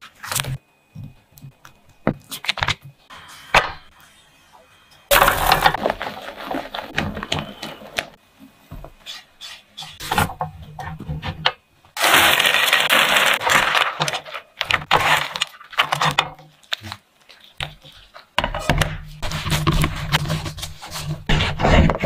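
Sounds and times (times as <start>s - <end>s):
rattling rush of ingredients: 5.1s - 7.9s, 12.0s - 16.0s
spatula stirring and scraping: 5.1s - 8.1s, 9.0s - 11.2s, 13.5s - 22.0s.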